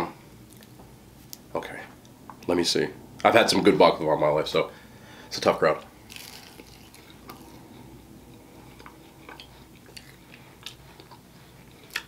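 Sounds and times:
chewing crunchy pastry: 0:06.0 - 0:12.0.

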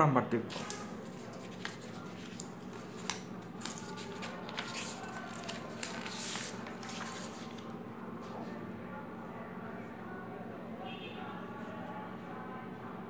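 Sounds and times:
paper rustling: 0:00.5 - 0:08.5.

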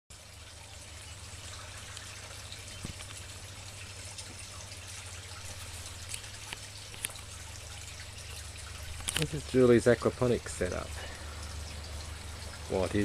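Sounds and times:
faint water drips: 0:00.1 - 0:13.0
water trickling: 0:00.1 - 0:13.0.

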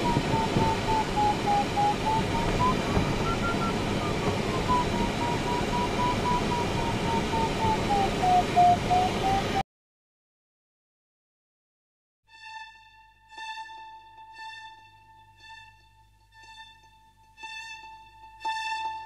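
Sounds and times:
rush of air in cockpit: 0:00.0 - 0:09.6
variometer beeping tone: 0:00.0 - 0:09.6.

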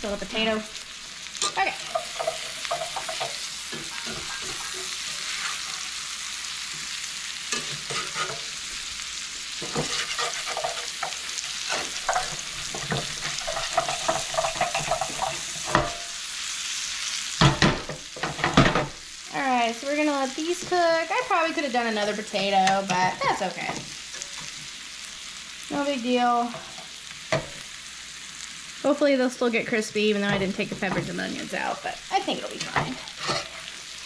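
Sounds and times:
potatoes sizzling in hot oil: 0:00.0 - 0:34.0
utensil scraping a pan: 0:01.4 - 0:06.1, 0:07.5 - 0:08.8, 0:09.5 - 0:16.2, 0:30.2 - 0:34.0.

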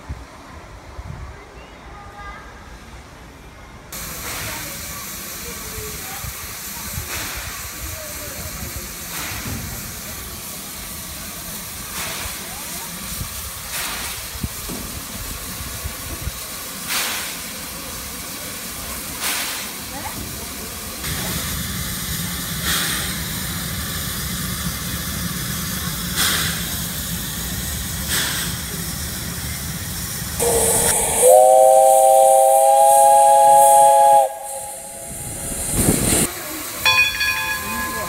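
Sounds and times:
burst of steam: 0:04.0 - 0:38.0
steam locomotive hissing: 0:04.0 - 0:38.0
steam whistle blast: 0:30.4 - 0:35.9
brief ringing: 0:36.9 - 0:38.0.

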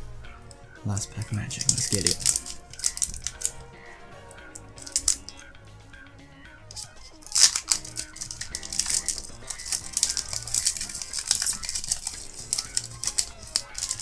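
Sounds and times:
foil wrapper crinkling: 0:00.9 - 0:03.6, 0:04.5 - 0:05.4, 0:06.7 - 0:14.0.

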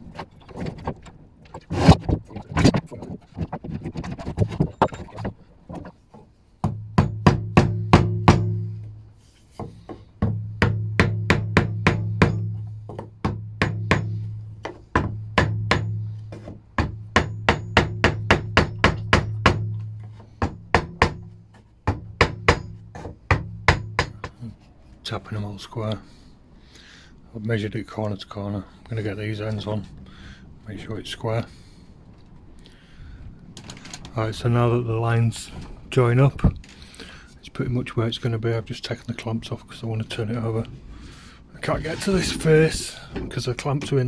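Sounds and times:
hammer tapping on wooden block: 0:06.6 - 0:08.7, 0:09.6 - 0:24.4.

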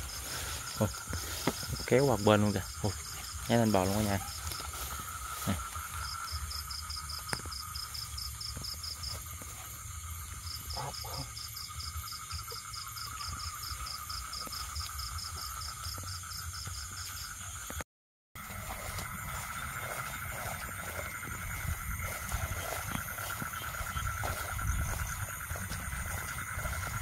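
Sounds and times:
frogs trilling: 0:00.0 - 0:17.8, 0:18.4 - 0:27.0
rapid regular chirping: 0:18.6 - 0:27.0.

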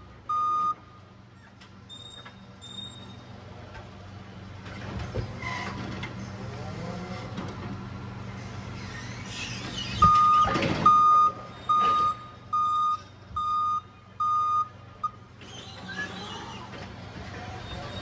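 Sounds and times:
forklift reverse alarm beeping: 0:00.0 - 0:01.0, 0:01.9 - 0:03.3, 0:10.0 - 0:15.2
low hum of truck: 0:00.0 - 0:18.0.

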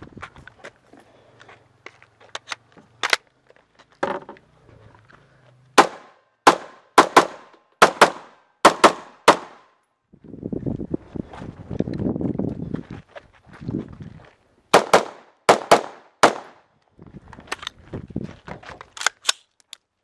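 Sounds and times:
gun handling clicks: 0:02.3 - 0:03.3, 0:18.9 - 0:19.9
rifle gunshots: 0:05.8 - 0:09.6, 0:14.7 - 0:16.6.

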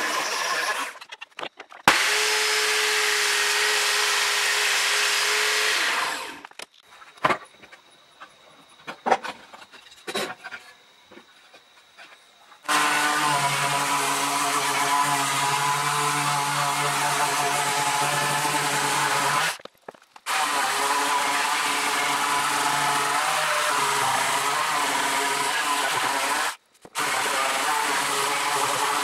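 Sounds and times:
electric sander on wood: 0:00.0 - 0:01.0, 0:01.9 - 0:06.4, 0:12.7 - 0:19.6, 0:20.3 - 0:29.0
table saw cutting wood: 0:00.0 - 0:01.1, 0:01.9 - 0:06.5, 0:12.7 - 0:19.6, 0:20.3 - 0:29.0.

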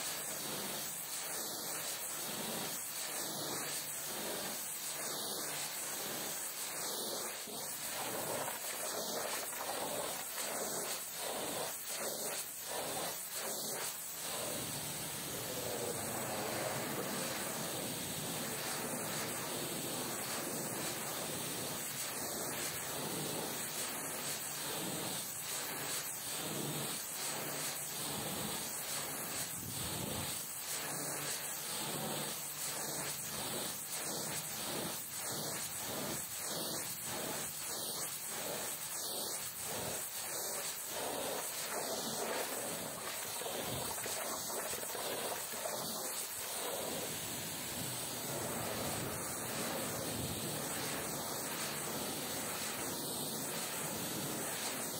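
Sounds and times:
pressure washer spraying water: 0:05.1 - 0:26.0, 0:39.5 - 0:54.9.

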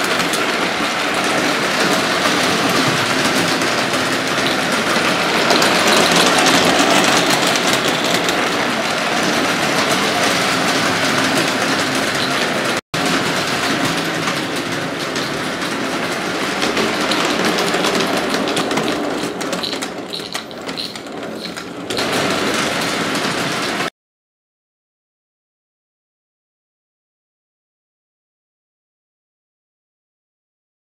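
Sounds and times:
toy train wheels clattering on track: 0:00.0 - 0:23.9.

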